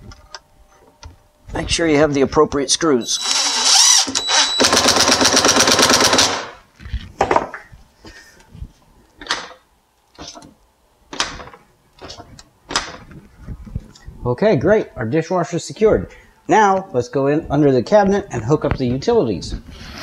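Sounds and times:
cordless drill motor whine: 3.1s - 4.9s.

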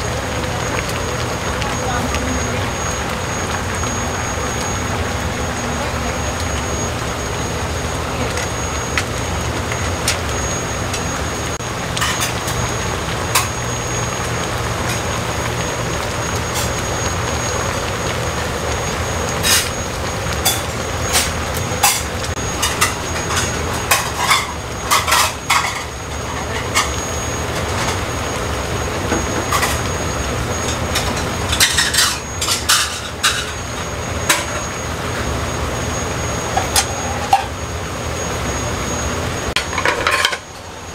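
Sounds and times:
gas burners rushing: 0.0s - 40.9s
pots boiling: 0.0s - 40.9s
dishes and pots clinking: 12.0s - 12.6s, 20.4s - 27.0s, 30.6s - 34.7s, 36.5s - 37.5s, 39.6s - 40.7s.

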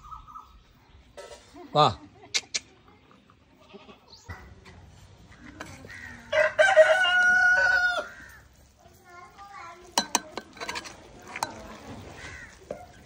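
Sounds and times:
rooster crowing: 6.1s - 8.4s.

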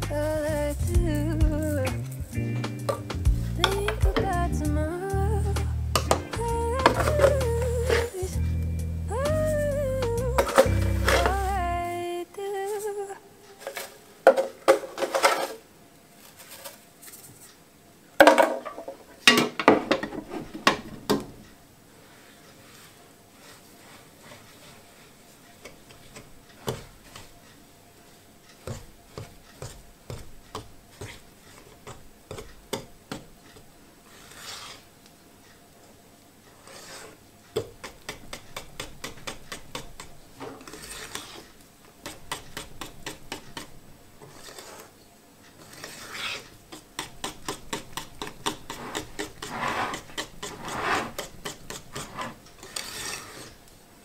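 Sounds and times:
utensil scraping and clicking: 10.0s - 11.6s, 36.4s - 53.8s.

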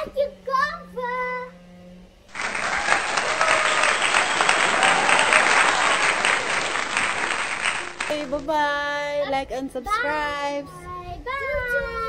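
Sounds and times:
many hands clapping: 2.3s - 8.5s.

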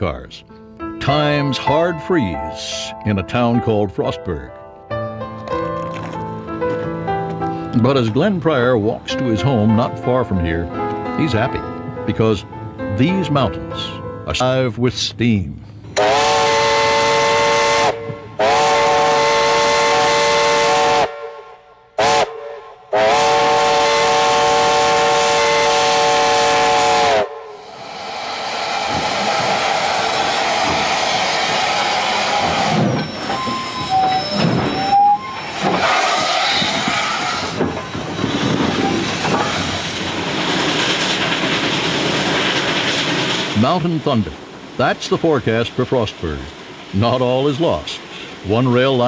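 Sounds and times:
steam whistle: 16.0s - 37.6s
loud hiss of steam: 23.0s - 49.0s.

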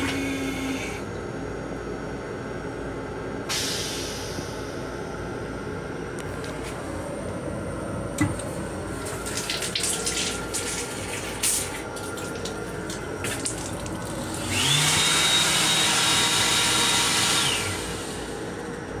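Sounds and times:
faucet water splashing into sink: 9.0s - 14.4s
hand dryer blowing: 9.0s - 18.6s.

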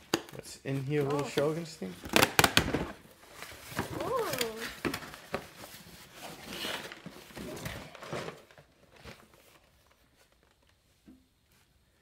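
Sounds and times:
cardboard rustling and scraping: 0.7s - 11.9s.

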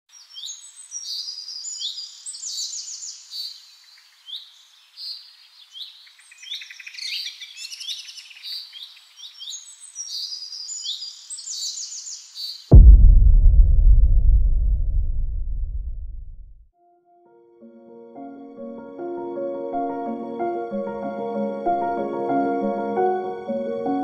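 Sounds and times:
songbirds singing: 0.1s - 12.7s.

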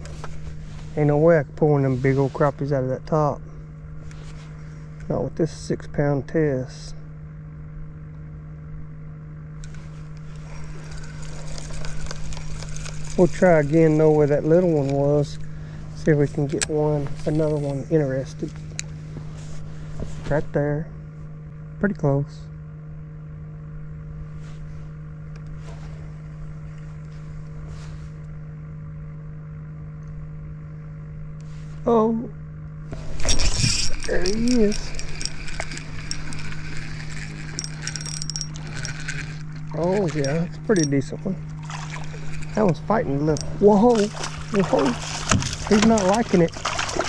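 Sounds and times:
boat motor humming: 0.0s - 47.0s
water churning and splashing: 41.4s - 47.0s.

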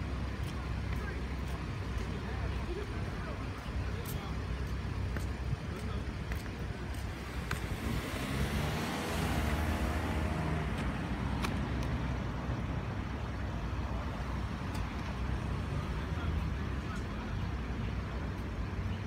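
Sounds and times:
low rumble of traffic: 0.0s - 19.0s
car engine pulling away: 6.9s - 13.4s.

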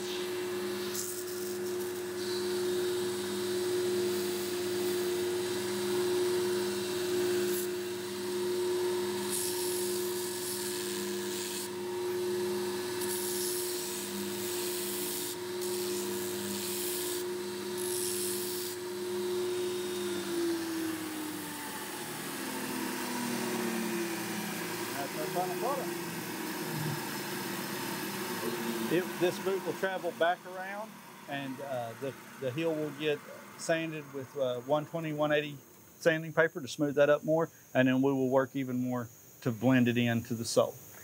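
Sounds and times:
leather heel sanding hiss: 0.0s - 2.4s, 13.0s - 18.8s, 21.0s - 30.5s
machine motor hum: 0.0s - 35.4s.

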